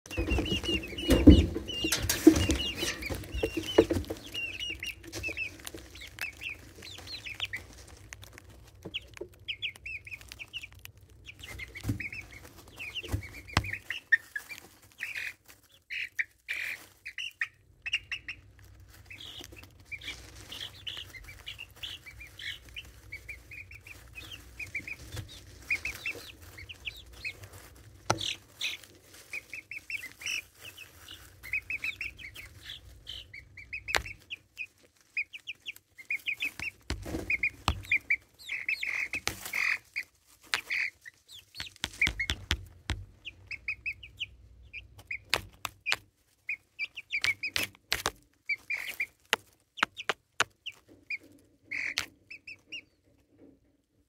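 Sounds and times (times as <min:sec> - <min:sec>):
chicks peeping: 0:00.0 - 0:54.0
sharp taps: 0:41.6 - 0:43.1.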